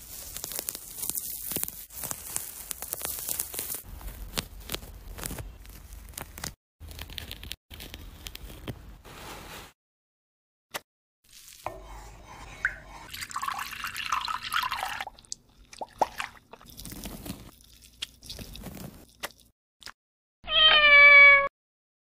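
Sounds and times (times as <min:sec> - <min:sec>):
orange peel crackling and tearing: 0:00.0 - 0:08.7, 0:16.5 - 0:19.5.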